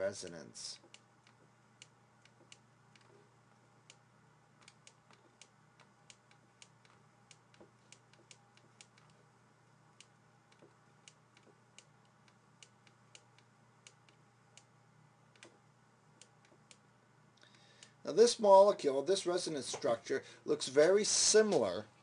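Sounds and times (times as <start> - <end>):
low steady hum: 0.0 - 22.0.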